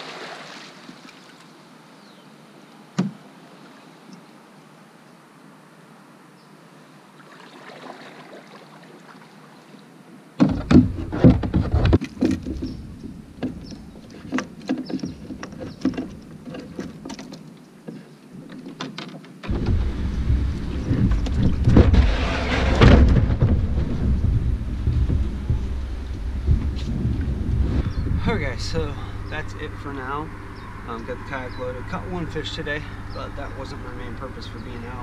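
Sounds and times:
paddle and gear knocks and clicks: 10.4 - 28.2
kayak hull scraping on concrete: 19.5 - 28.8
loud low rumble: 19.5 - 35.0.

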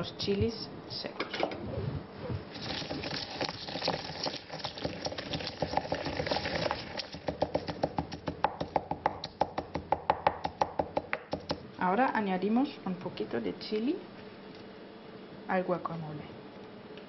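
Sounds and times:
pestle grinding in mortar: 2.6 - 11.6.

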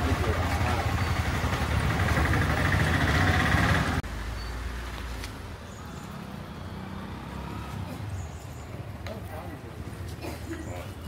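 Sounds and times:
motor scooter engine idling: 0.0 - 4.0.

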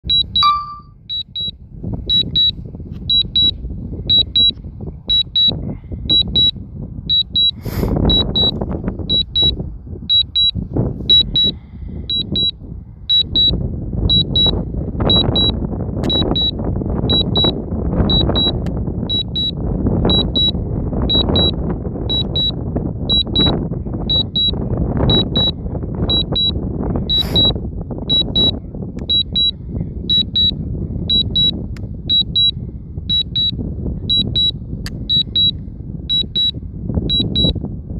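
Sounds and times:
wind buffeting the microphone: 0.0 - 37.9
remote controller warning beeps: 0.1 - 7.5, 8.1 - 8.5, 9.1 - 12.5, 13.1 - 13.5, 14.1 - 15.5, 16.1 - 17.5, 18.1 - 26.5, 27.1 - 37.6.

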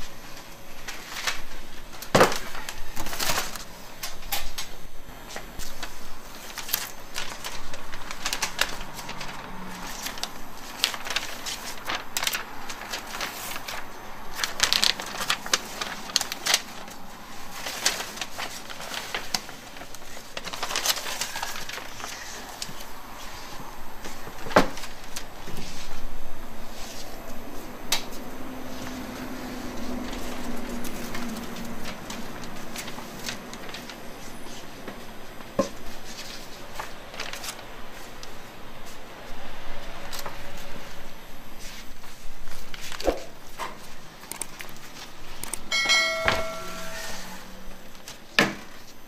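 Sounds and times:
baking paper crinkling: 0.0 - 49.0.

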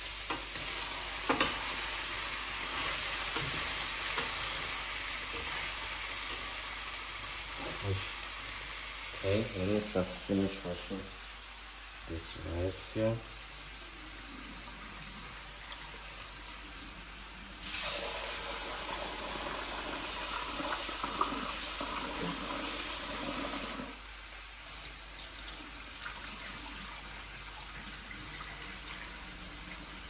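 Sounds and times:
tap water running into sink: 17.6 - 24.0.

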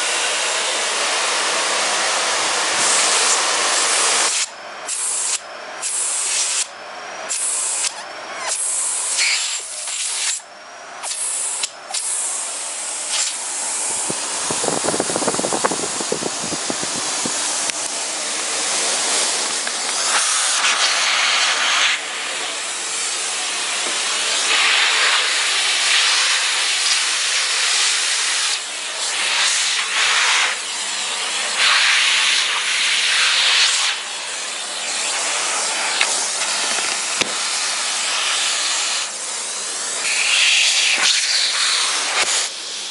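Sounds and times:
vacuum cleaner running: 0.0 - 42.9.

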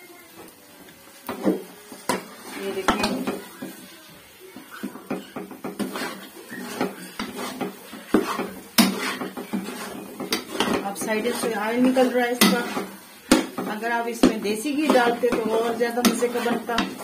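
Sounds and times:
steel spoon scraping a metal pan: 4.6 - 17.0.

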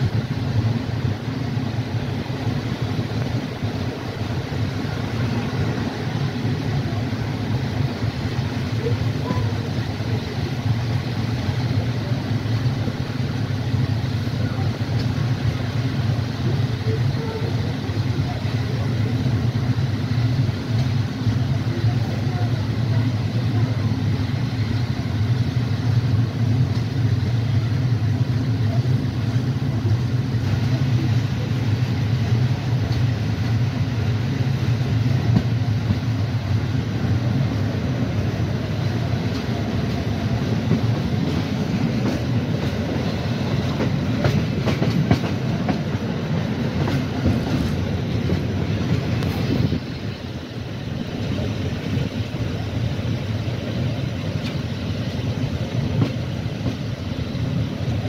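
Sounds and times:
train wheels rumbling on rails: 0.0 - 58.0
wheels clicking over rail joints: 39.2 - 49.8.

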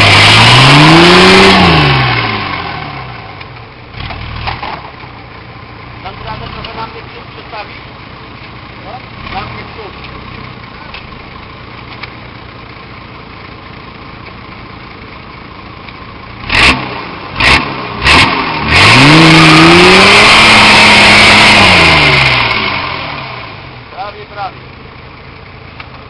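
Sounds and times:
loud engine bursts: 0.0 - 3.2, 16.4 - 24.5
diesel engine revving: 0.0 - 14.0, 14.6 - 26.0.

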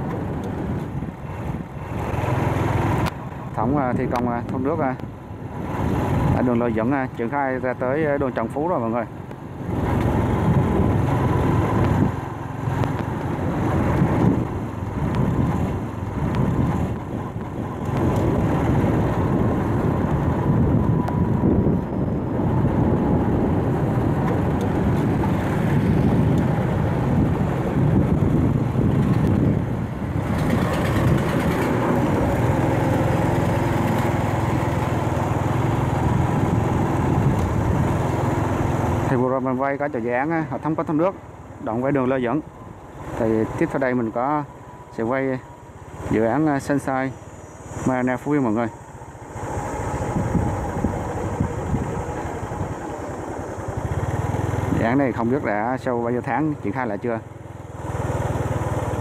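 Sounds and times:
surrounding traffic: 0.0 - 59.0
vehicle engine and road noise: 0.0 - 59.0.

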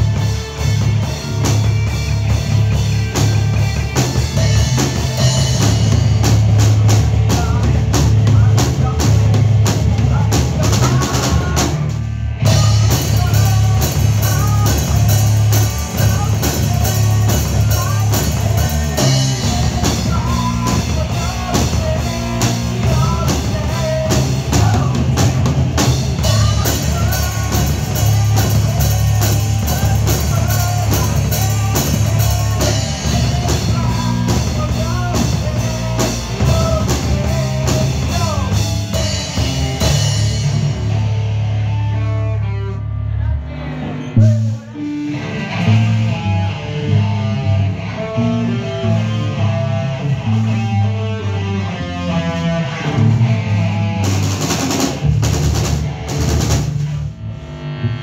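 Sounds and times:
drum kit with cymbal hits: 0.0 - 42.2, 44.1 - 58.0
distorted electric guitars: 0.0 - 58.0
person singing: 6.8 - 40.4, 41.8 - 53.6.

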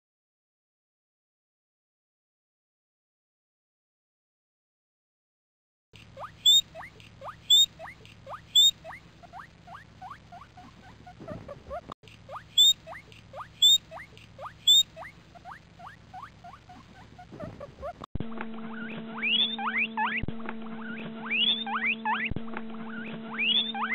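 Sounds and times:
guinea pigs squeaking: 6.0 - 18.1, 18.7 - 23.9
steady low hum: 6.0 - 23.9.

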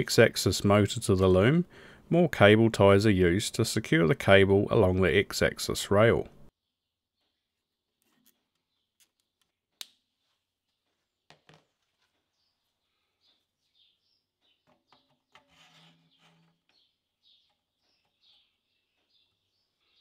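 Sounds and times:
birds chirping: 12.1 - 15.3, 16.0 - 20.0
parts knocking and rubbing: 14.6 - 18.6.

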